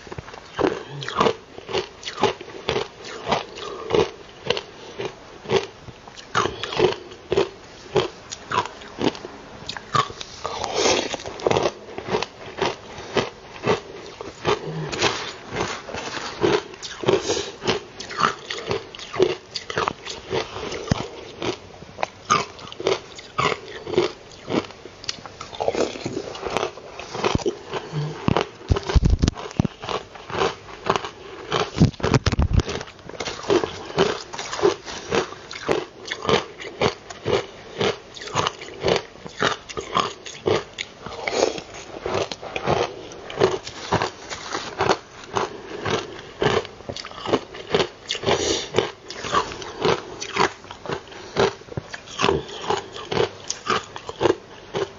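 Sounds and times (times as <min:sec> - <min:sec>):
crunching ice: 0:22.2 - 0:54.9.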